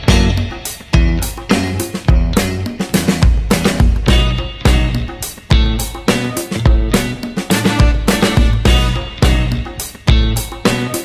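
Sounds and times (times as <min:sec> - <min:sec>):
music with beat and plucked notes: 0:00.0 - 0:11.0.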